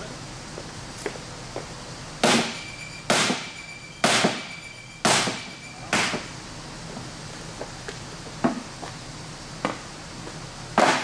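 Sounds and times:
hammer blows on sheet metal: 2.2s - 6.3s.

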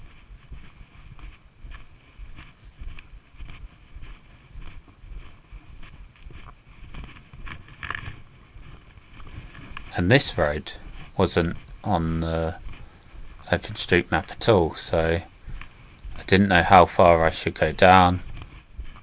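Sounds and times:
footsteps on tarmac: 0.0s - 19.0s
wind rumble on microphone: 18.2s - 19.0s.

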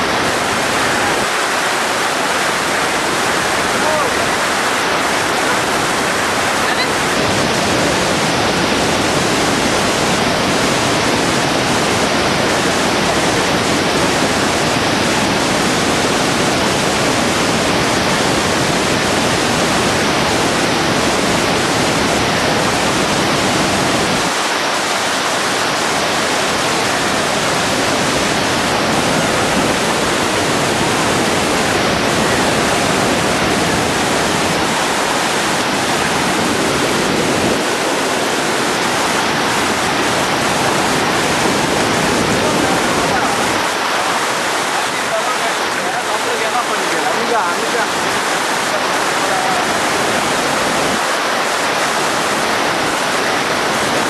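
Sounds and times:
river rapids rushing over rocks: 0.0s - 54.0s.

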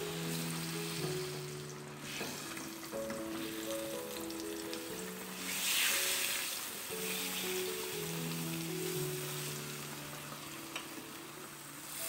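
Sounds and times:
chicken sizzling in oil: 0.0s - 12.0s
soft background music: 0.0s - 12.0s.

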